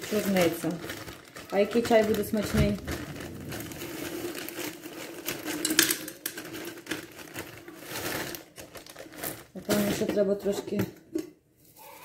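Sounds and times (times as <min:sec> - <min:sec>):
kitchen clicks and rattles: 0:04.7 - 0:07.6.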